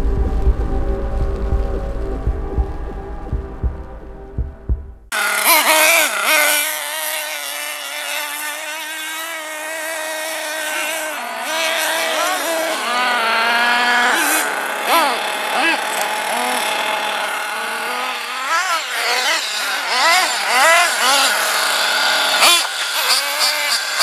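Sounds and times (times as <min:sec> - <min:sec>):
low pulsing beat: 0:00.0 - 0:05.1
small engine whining at high revs: 0:05.1 - 0:24.0.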